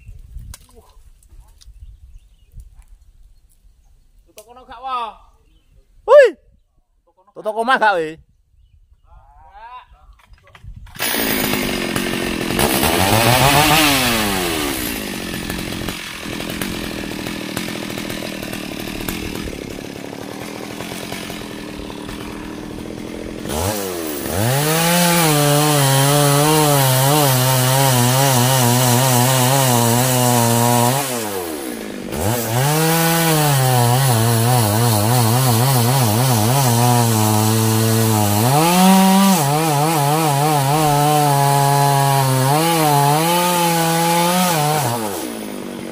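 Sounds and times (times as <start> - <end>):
chainsaw revving and cutting wood: 10.6 - 45.9.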